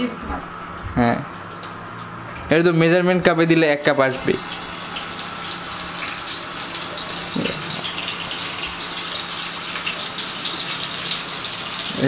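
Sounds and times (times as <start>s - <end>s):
fish sizzling in oil: 4.2s - 12.0s.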